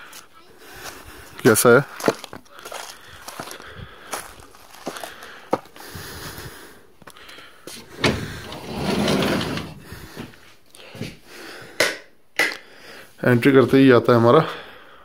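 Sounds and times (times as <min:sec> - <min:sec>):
sliding glass door rolling open: 0:07.8 - 0:10.0.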